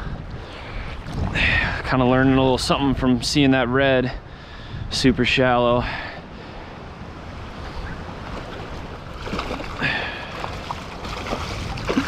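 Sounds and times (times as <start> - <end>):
wind rumble on microphone: 0.0 - 12.0
water lapping around legs: 8.2 - 12.0
water splash: 8.2 - 12.0.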